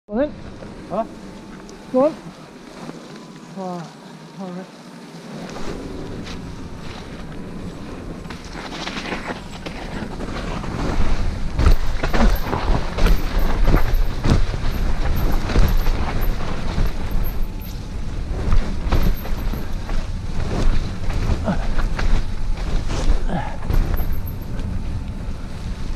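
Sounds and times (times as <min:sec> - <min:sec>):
bike tyres rumbling on dirt: 0:05.2 - 0:25.9
bike knocking and rattling: 0:06.1 - 0:25.0.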